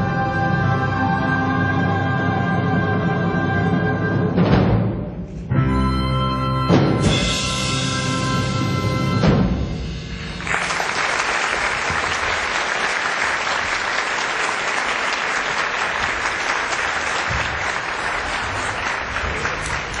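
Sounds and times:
audience applauding: 10.4s - 20.0s.

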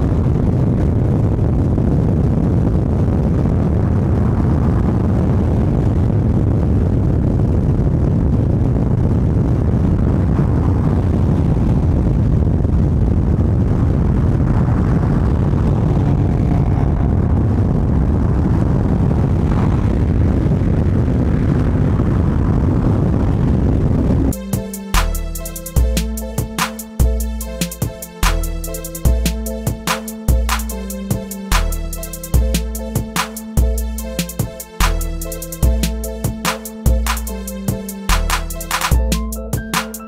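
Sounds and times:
wind buffeting microphone: 0.0s - 24.4s
road and tyre noise: 9.0s - 24.4s.

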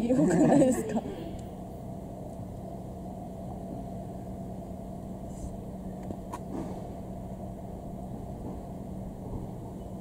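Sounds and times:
faint hum: 0.0s - 10.0s
low background rumble: 0.0s - 10.0s.

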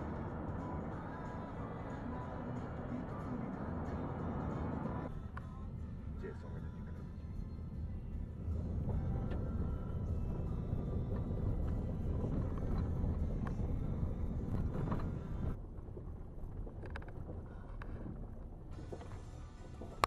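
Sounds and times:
car engine and road rumble: 0.0s - 20.0s
gravel crackling under tyres: 0.0s - 20.0s.

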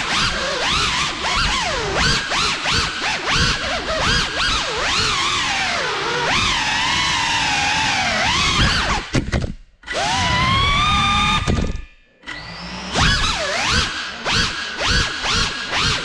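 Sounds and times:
drone motors whining: 0.0s - 9.1s, 9.8s - 16.0s.

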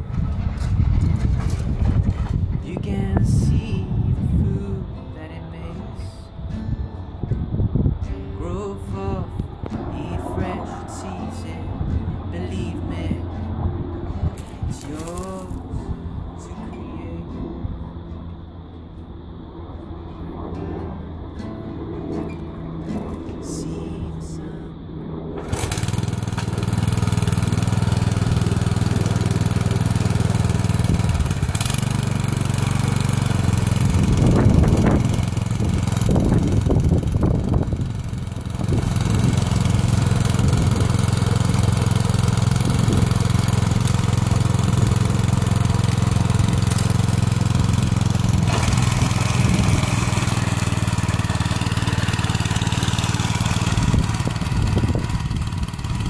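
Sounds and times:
tiller tines churning soil: 0.0s - 3.8s, 9.7s - 17.0s, 22.1s - 24.0s, 25.4s - 56.0s
small petrol engine running: 0.0s - 4.9s, 9.3s - 24.4s, 25.2s - 56.0s.

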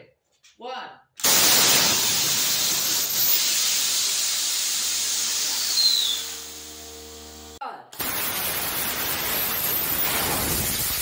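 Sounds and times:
compressed air jet rushing hiss: 1.2s - 11.0s
short falling whistle: 5.5s - 6.4s.

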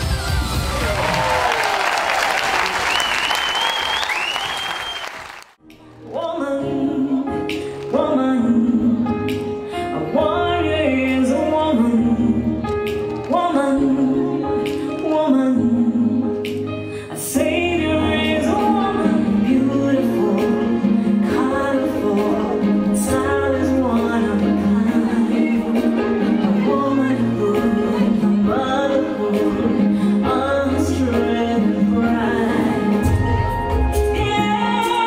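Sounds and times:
woman singing dance song: 5.9s - 35.0s.

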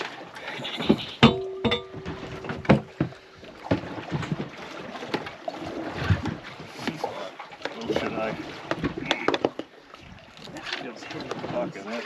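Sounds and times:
knocks and thuds on boat: 0.9s - 9.7s.

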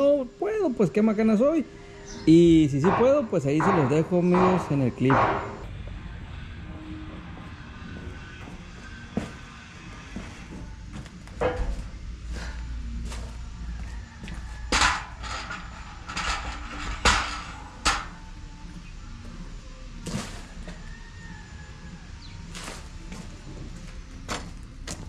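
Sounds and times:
metal knocks and clanks: 2.6s - 5.8s, 10.1s - 12.0s, 13.8s - 18.2s.

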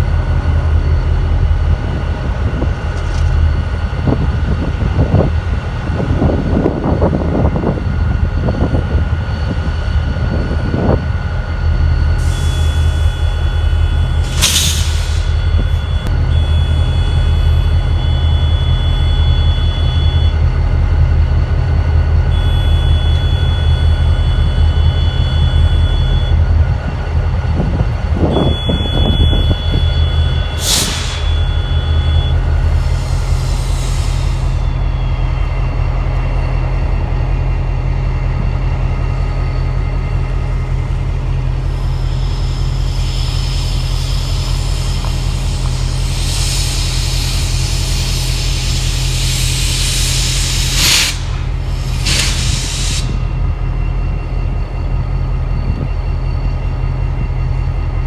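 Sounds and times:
diesel locomotive idling: 0.0s - 58.0s
air hissing: 14.2s - 15.4s, 30.5s - 31.5s, 32.7s - 34.8s, 42.9s - 53.4s.

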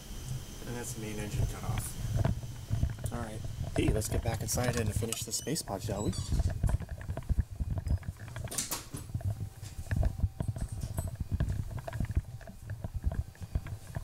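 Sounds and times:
footsteps: 5.9s - 14.0s.

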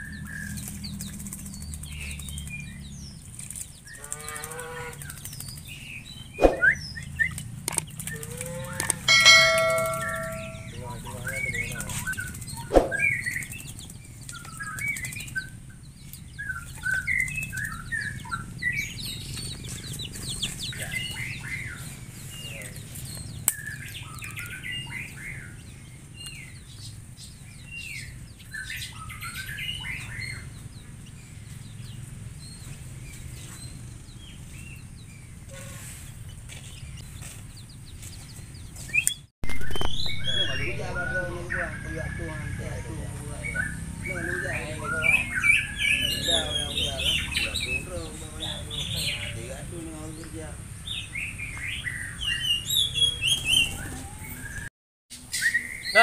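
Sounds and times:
small birds chirping: 0.0s - 56.0s
bird splashing in water: 0.3s - 6.8s.

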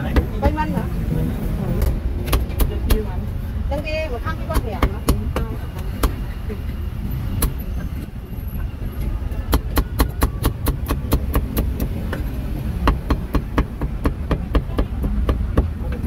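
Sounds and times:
cleaver chopping on wooden block: 9.5s - 16.0s.

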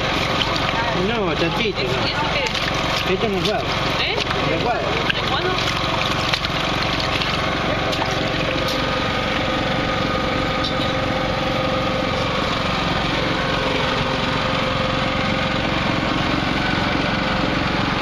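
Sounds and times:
small engine running: 0.0s - 18.0s.

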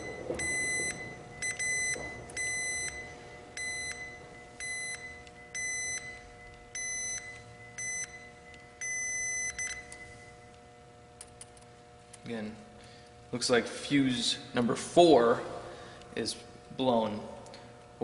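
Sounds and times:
multimeter short beeps: 0.0s - 10.3s.

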